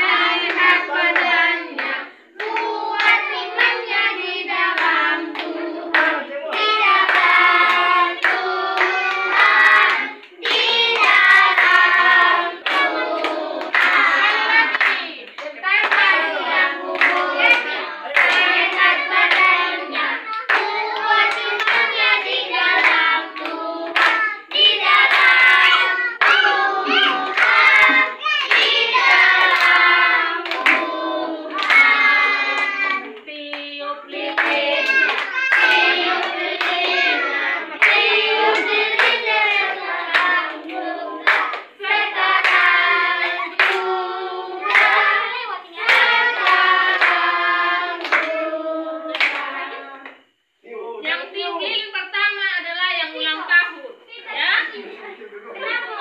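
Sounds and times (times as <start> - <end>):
group singing: 0.0 - 50.5
hand clapping: 31.6 - 33.6.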